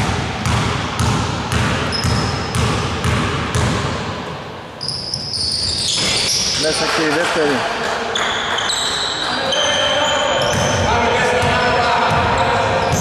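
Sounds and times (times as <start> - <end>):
basketball bouncing on hardwood floor: 0.0 - 3.9.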